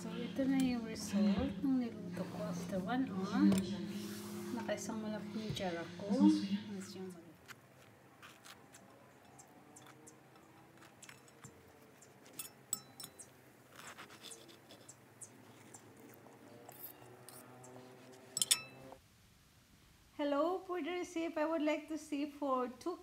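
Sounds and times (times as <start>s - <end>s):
chewing: 7.4s - 18.3s
knife and fork scraping bread: 10.6s - 17.5s
cutlery clinking on plate: 18.3s - 18.8s.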